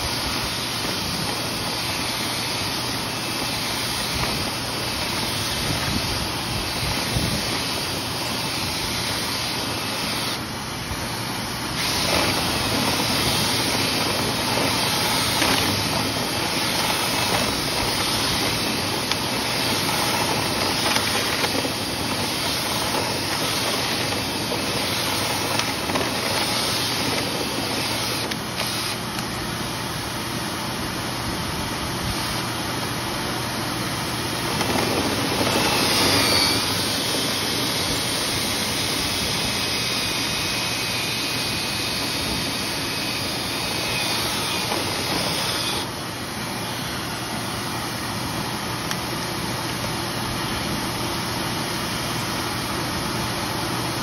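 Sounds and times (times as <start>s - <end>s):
cordless drill spinning brush: 0.0s - 29.4s, 33.8s - 46.0s
vacuum whirring: 0.0s - 30.8s, 31.5s - 51.1s.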